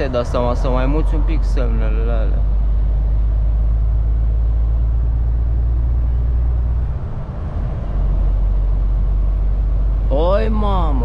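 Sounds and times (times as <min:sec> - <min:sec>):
truck engine and road rumble: 0:00.0 - 0:11.0.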